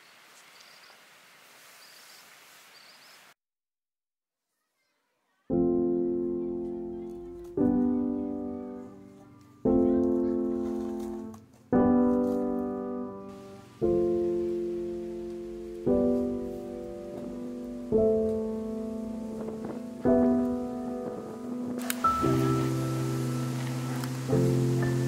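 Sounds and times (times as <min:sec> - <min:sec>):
faint outdoor ambience: 0:00.0 - 0:03.4, 0:04.5 - 0:25.0
piano chords: 0:05.5 - 0:25.0.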